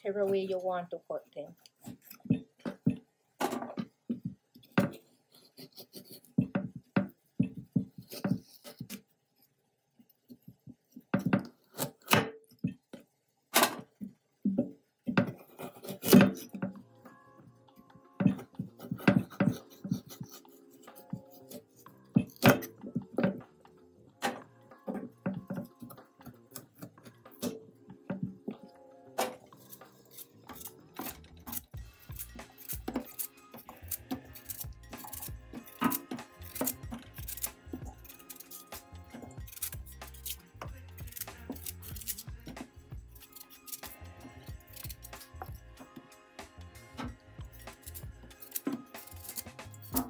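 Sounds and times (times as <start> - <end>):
soft background music: 0.0 - 9.0, 14.5 - 50.0
knife chopping carrots on board: 4.1 - 9.0, 14.5 - 16.8, 18.2 - 23.5.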